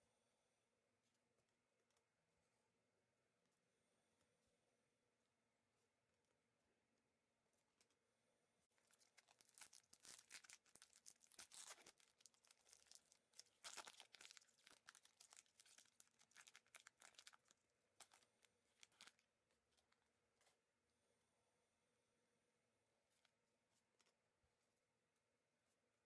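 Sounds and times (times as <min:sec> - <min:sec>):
plastic wrapper crinkling and tearing: 0:08.8 - 0:20.0.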